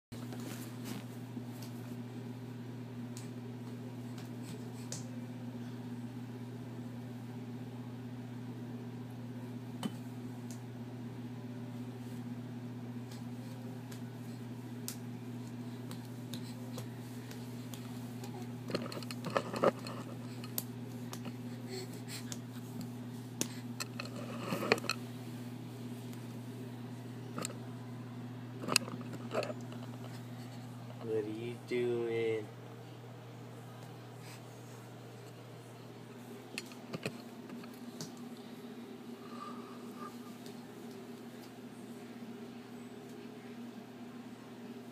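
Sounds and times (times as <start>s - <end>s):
low mechanical hum: 0.2s - 44.9s
soft taps and rustles: 14.8s - 25.0s.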